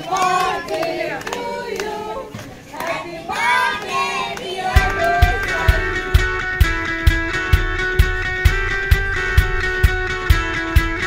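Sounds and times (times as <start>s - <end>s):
voices singing together: 0.0s - 6.3s
steady beat: 4.7s - 11.0s
strummed guitar: 4.8s - 11.0s.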